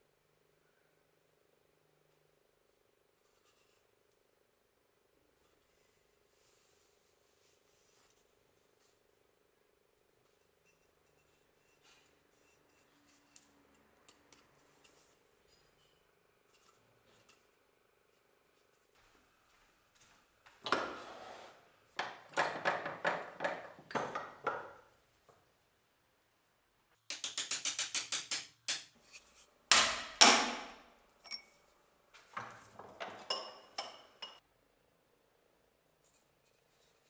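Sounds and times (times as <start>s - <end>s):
hammer striking metal punch: 29.7s - 30.8s.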